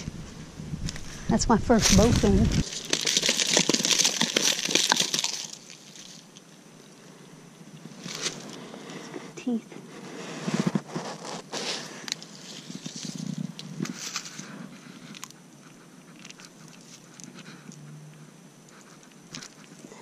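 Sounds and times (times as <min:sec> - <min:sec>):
dry leaves crackling and rustling: 0:01.7 - 0:06.3, 0:10.9 - 0:14.6.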